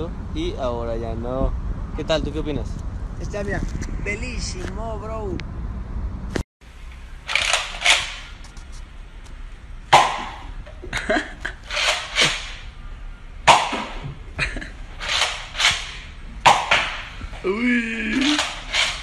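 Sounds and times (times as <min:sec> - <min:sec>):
toy dart blaster firing: 0:13.5 - 0:14.1.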